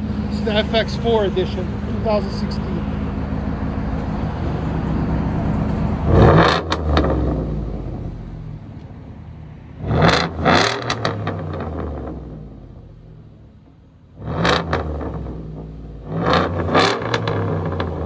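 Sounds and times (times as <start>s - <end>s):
car engine idling and revving: 0.0s - 18.0s
exhaust pops: 5.6s - 8.8s, 13.6s - 18.0s.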